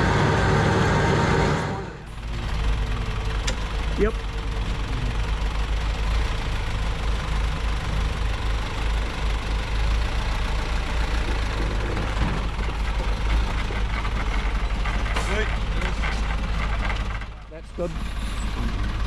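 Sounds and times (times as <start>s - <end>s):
diesel truck engine rumbling: 0.0s - 19.0s.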